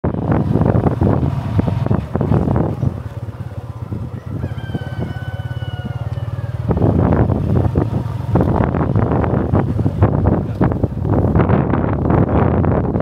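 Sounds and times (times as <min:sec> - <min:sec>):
small motorcycle engine: 0:00.1 - 0:12.6
rooster crowing: 0:03.4 - 0:07.2.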